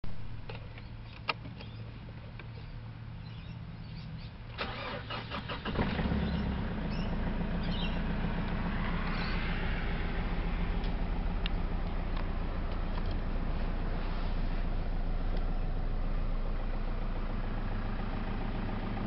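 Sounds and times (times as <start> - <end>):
diesel engine idling: 2.8 - 19.0
starter motor cranking: 4.6 - 6.0.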